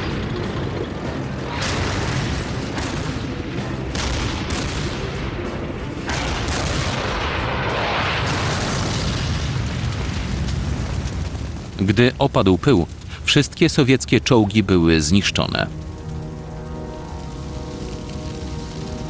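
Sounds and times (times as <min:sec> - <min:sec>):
background music: 0:00.0 - 0:11.0, 0:11.7 - 0:19.0
tank cannon shots: 0:00.0 - 0:12.2
shell explosions: 0:00.0 - 0:14.4
low rumble: 0:00.0 - 0:19.0.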